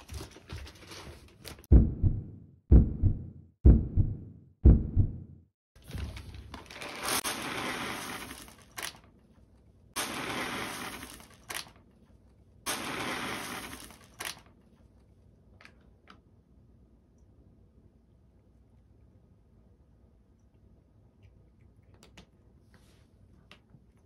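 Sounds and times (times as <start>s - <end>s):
kibble pouring into a bowl: 6.6s - 9.0s, 10.0s - 11.7s, 12.7s - 14.4s.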